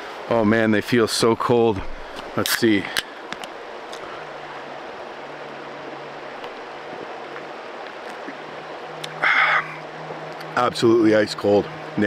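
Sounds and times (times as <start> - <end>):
river flowing over gravel: 0.0 - 12.0
loud breathy sound: 9.2 - 9.8.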